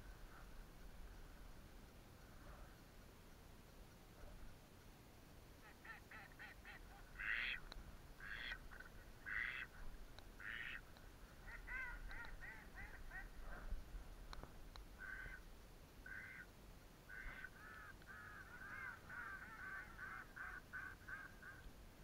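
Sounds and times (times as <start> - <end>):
duck quacking: 5.6 - 7.6, 8.2 - 9.7, 10.4 - 10.8, 11.4 - 13.6.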